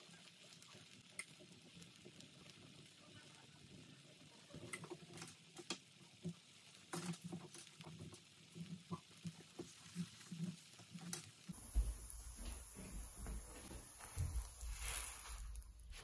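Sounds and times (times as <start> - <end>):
batter frying in oil: 0.0 - 16.0.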